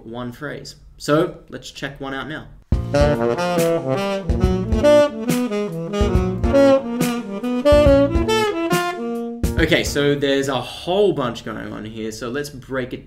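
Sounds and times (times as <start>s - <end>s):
tenor saxophone jazz line: 2.7s - 10.1s.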